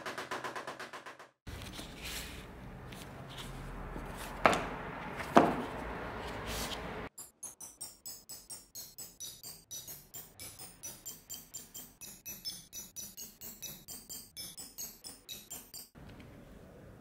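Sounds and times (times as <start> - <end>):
rhythmic music beat: 7.2 - 16.0.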